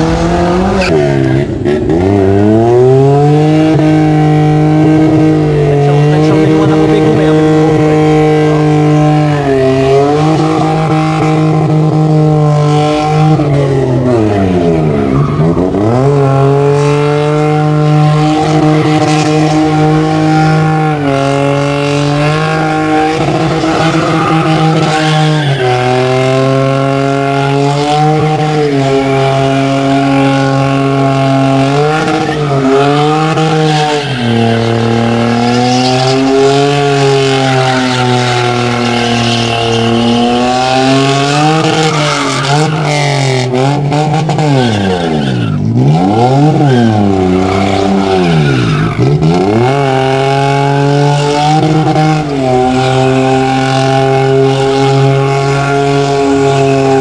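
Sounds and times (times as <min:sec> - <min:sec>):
car engine revving high: 0:00.0 - 0:57.0
tyres squealing: 0:28.3 - 0:43.6.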